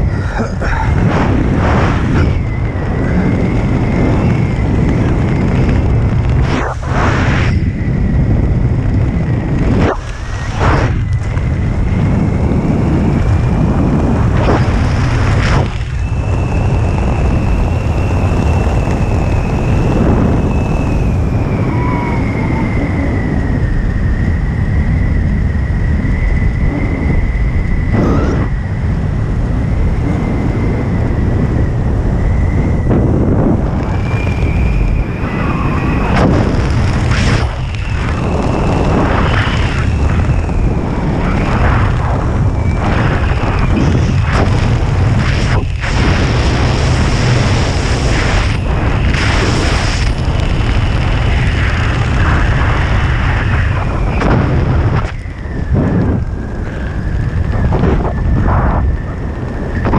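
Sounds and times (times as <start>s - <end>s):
wind buffeting microphone: 0.0s - 59.9s.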